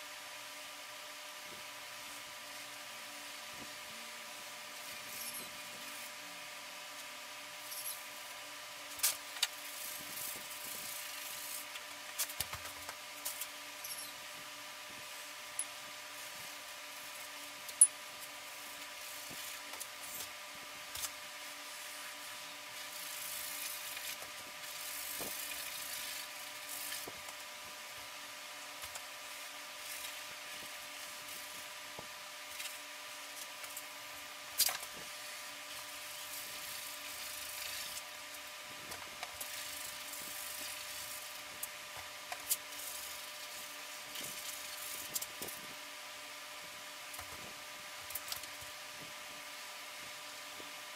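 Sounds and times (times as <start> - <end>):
steady electrical hum: 0.0 - 50.9
paintbrush scrubbing canvas: 9.5 - 11.8, 18.5 - 20.2, 21.6 - 27.3.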